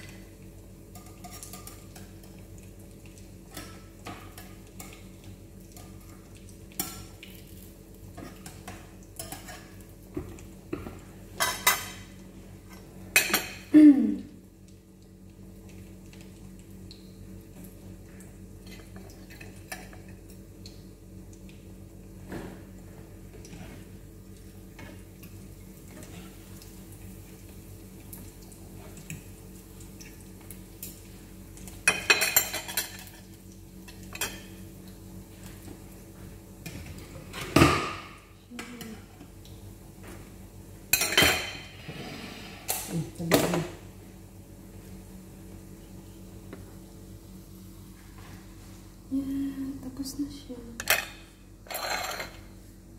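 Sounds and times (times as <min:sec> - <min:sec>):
plates and cutlery clattering: 0:41.0 - 0:41.8, 0:50.8 - 0:52.5.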